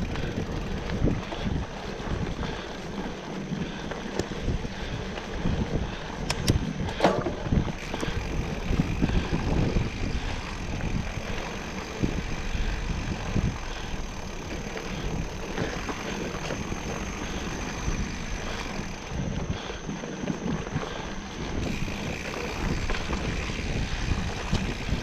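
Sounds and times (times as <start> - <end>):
steady low rumble: 0.0 - 25.0
wind buffeting microphone: 0.0 - 25.0
sharp clicks: 6.2 - 7.1.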